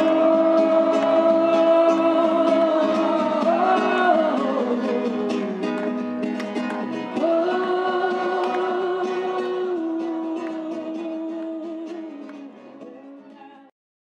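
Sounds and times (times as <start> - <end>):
crowd singing slow song: 0.0 - 13.5
guitar: 0.0 - 13.7.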